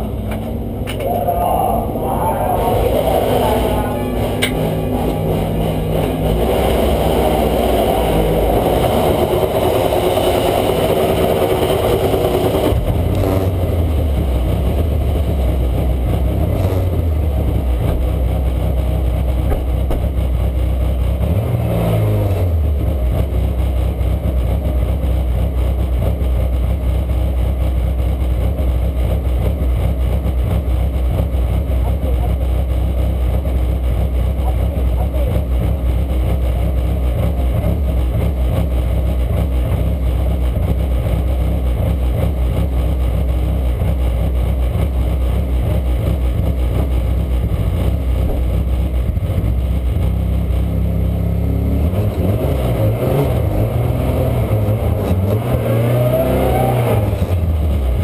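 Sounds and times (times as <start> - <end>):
loud steady noise: 0.0 - 27.2
race car engine idling: 0.0 - 55.4, 57.0 - 58.0.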